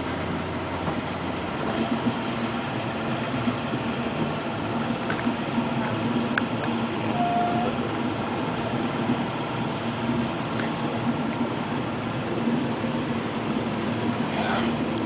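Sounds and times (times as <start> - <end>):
engine hum: 0.0 - 15.0
brief higher tone: 7.1 - 7.9.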